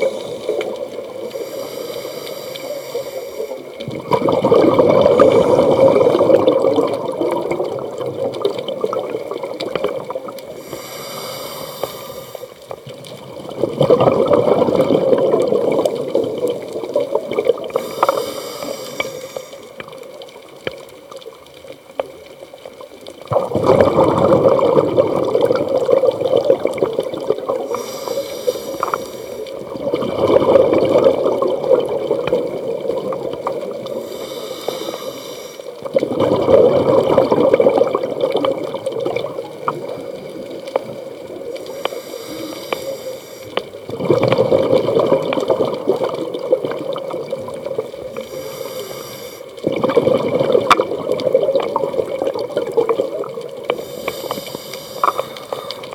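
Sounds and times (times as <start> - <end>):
exhaled bubbles rushing underwater: 0.0 - 55.9
regulator inhalation hiss: 1.2 - 3.8, 10.5 - 12.7, 17.7 - 19.8, 27.6 - 29.6, 33.8 - 35.9, 41.5 - 43.7, 48.1 - 49.6, 53.7 - 55.9.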